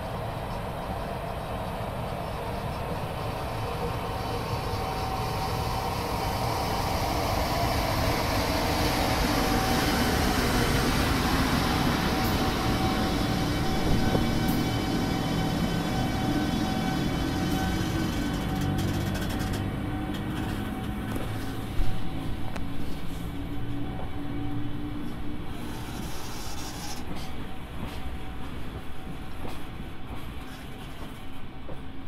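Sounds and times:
electric locomotive motor whine: 0:00.0 - 0:29.5
wheels clacking on rail joints: 0:17.6 - 0:21.4.

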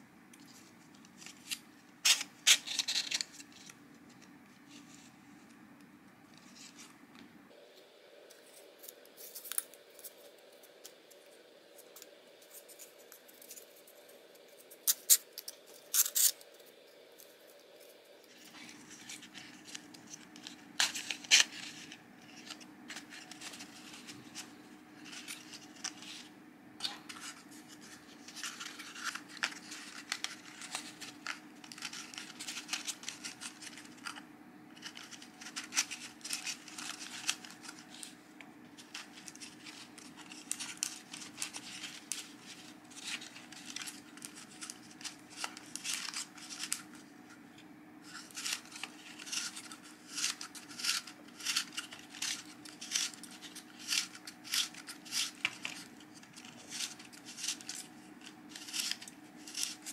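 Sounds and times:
faint steady hum: 0:00.0 - 0:59.9
cardstock rustling and clicking: 0:00.4 - 0:05.1, 0:18.4 - 0:47.2, 0:48.0 - 0:59.9.

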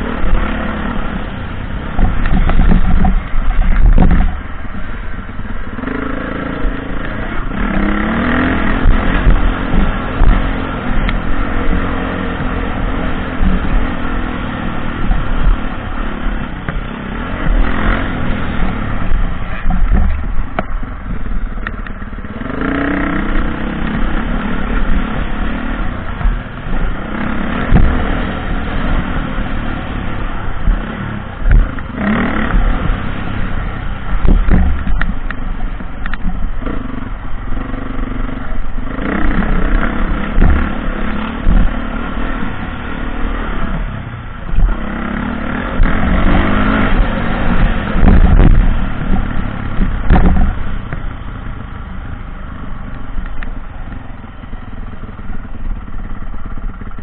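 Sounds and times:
dirt bike engine revving: 0:00.0 - 0:52.9
short low thumps: 0:26.1 - 0:29.6, 0:30.2 - 0:37.2, 0:45.7 - 0:52.0.

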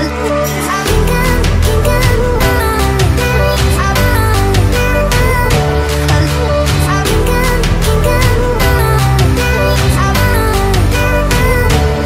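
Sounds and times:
upbeat music with plucked guitar: 0:00.0 - 0:12.0.

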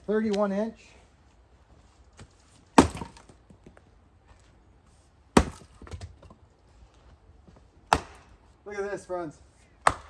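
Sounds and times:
axe chopping firewood: 0:02.7 - 0:03.4, 0:05.3 - 0:06.3, 0:07.8 - 0:08.4, 0:09.8 - 0:10.0.

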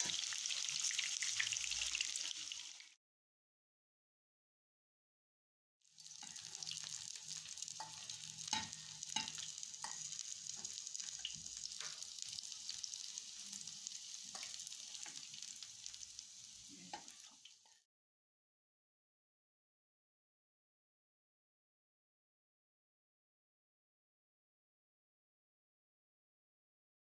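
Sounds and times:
food sizzling in hot oil: 0:00.0 - 0:03.0, 0:05.8 - 0:17.9.

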